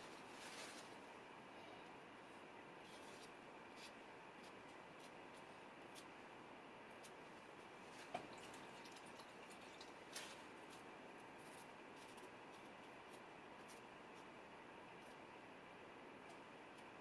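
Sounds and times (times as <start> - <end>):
brush scraping on palette: 0.0 - 1.1, 2.8 - 6.1.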